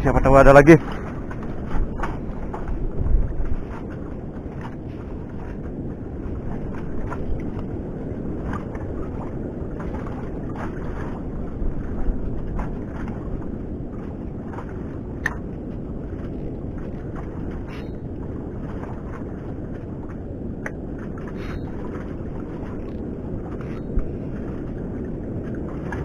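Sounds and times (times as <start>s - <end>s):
water lapping against raft: 0.0s - 26.0s
wind rumble on microphone: 0.0s - 26.0s
light clicks and taps: 15.2s - 15.4s, 20.6s - 20.8s.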